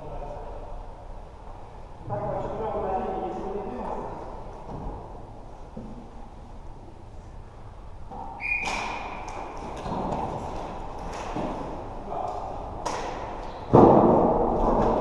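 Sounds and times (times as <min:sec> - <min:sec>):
referee's whistle blast: 0:08.4 - 0:09.0
loud thud: 0:13.7 - 0:15.0.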